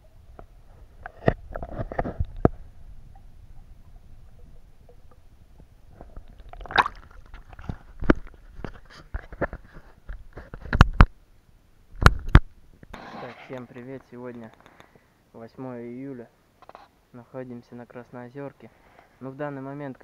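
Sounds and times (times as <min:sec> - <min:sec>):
muffled underwater rumble: 0:00.0 - 0:08.7.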